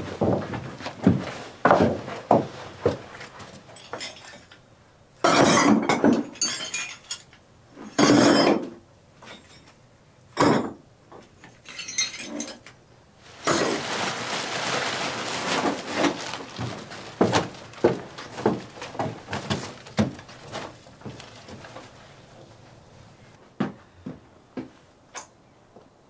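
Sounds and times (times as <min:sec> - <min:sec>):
debris scraping and clinking: 0:03.7 - 0:04.6, 0:05.2 - 0:09.8, 0:11.4 - 0:22.4.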